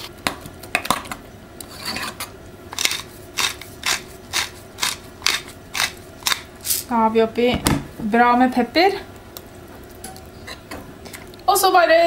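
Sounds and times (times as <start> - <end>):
pepper mill grinding: 2.1 - 6.9.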